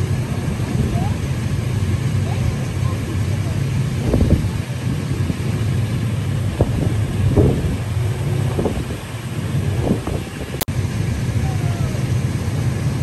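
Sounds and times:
strong wind buffeting microphone: 0.0 - 13.0.

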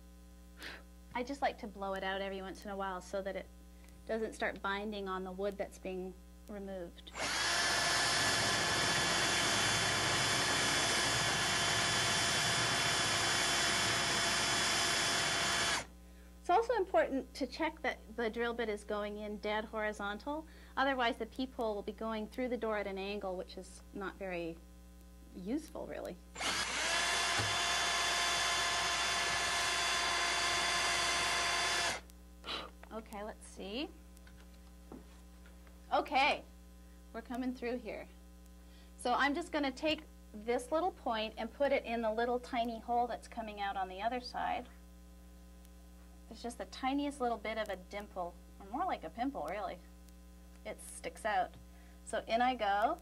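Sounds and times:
cordless drill boring wood: 7.1 - 15.9, 26.4 - 32.1.

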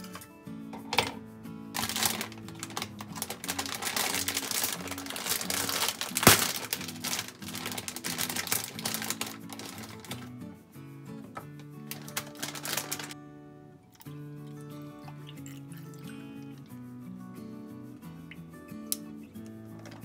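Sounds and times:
background music: 0.0 - 20.0
utensils clicking and rustling: 1.8 - 10.3.

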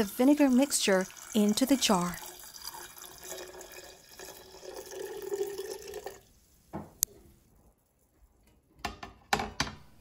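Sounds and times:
liquid pouring into a glass jar: 0.2 - 6.3.

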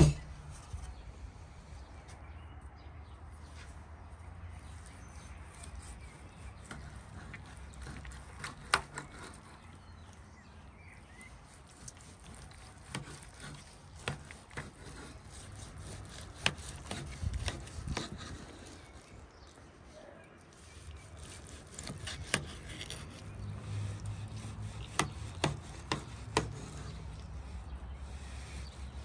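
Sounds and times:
rubbing or scraping: 11.2 - 19.6, 20.4 - 29.0.

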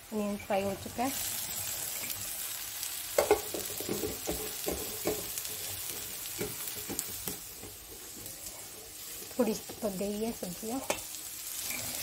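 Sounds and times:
vegetables sizzling in oil: 0.0 - 12.0
metal knocking and scraping pan: 3.2 - 8.2.

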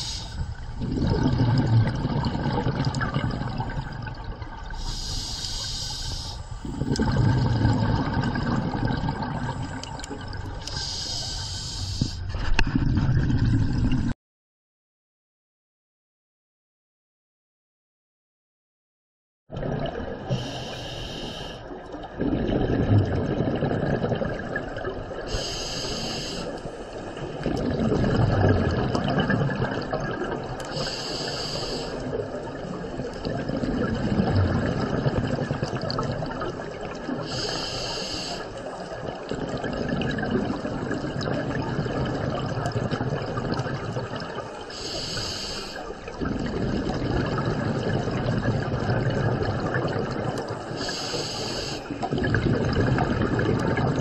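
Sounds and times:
regulator inhale hiss: 0.0 - 0.6, 4.8 - 6.8, 10.7 - 12.4, 20.3 - 21.7, 25.3 - 27.1, 30.7 - 32.1, 37.2 - 38.8, 44.6 - 46.0, 50.7 - 52.0
bubbling exhaled air: 0.0 - 14.2, 19.5 - 54.0.

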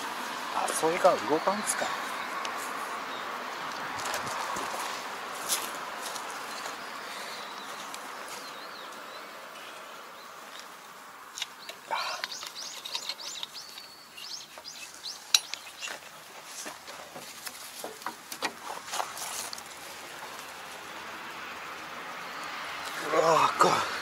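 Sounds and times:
birds chirping: 0.0 - 24.0
light metallic clicks and clinks: 14.6 - 16.0.

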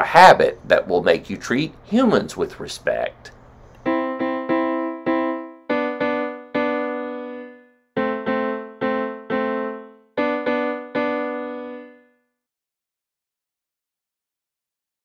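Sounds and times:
piano-toned keyboard chords: 3.8 - 12.4.

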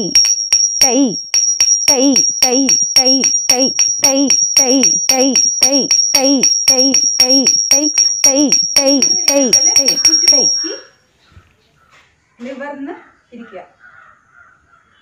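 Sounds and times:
jingling pitched percussion strokes: 0.0 - 10.9
thin high-pitched tone: 0.0 - 10.9.

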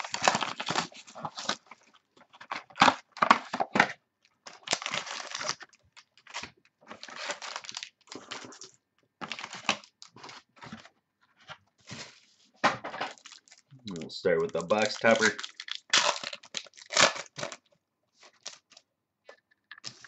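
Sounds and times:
wrapping crinkling and tearing: 0.0 - 10.9, 13.1 - 20.0
cardboard rustling: 9.2 - 13.6.

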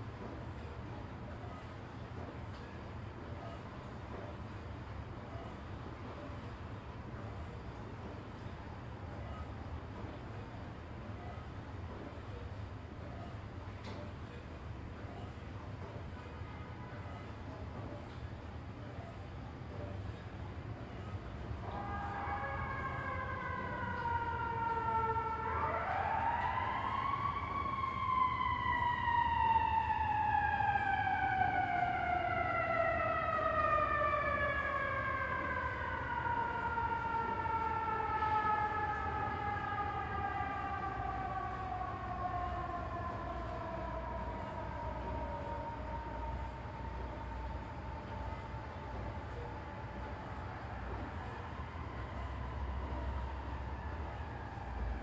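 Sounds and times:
low rumble of city traffic: 0.0 - 55.0
siren wailing: 21.1 - 55.0.

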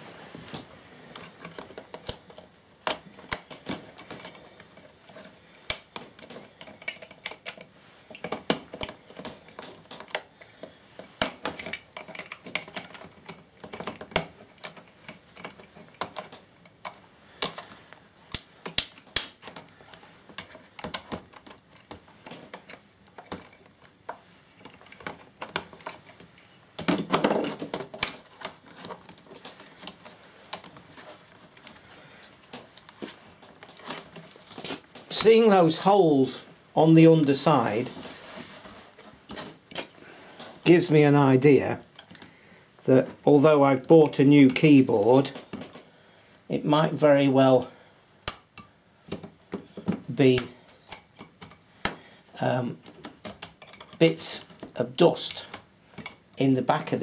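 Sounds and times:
plastic clicking and snapping: 1.2 - 30.8.

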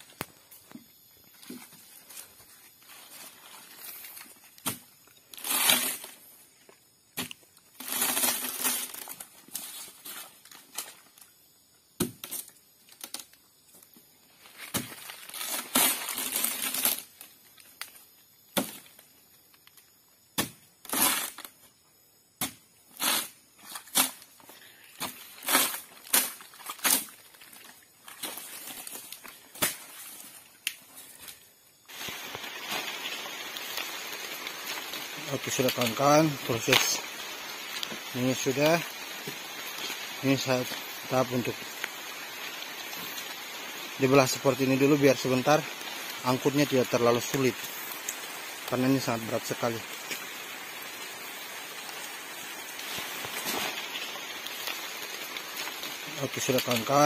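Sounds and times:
machete chopping palm trunk: 12.0 - 12.4, 14.6 - 15.0, 18.5 - 18.9, 20.3 - 21.4, 22.4 - 23.3.

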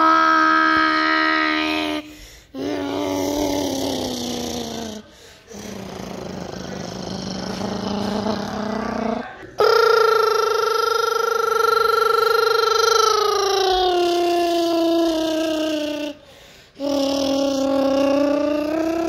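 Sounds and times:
child making jet-engine noises: 9.6 - 16.2.

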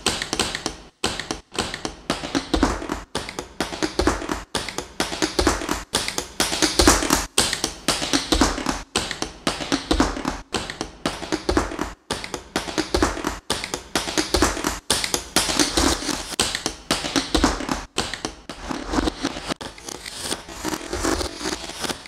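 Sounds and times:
glitchy industrial techno track: 5.1 - 8.9, 14.2 - 22.0.

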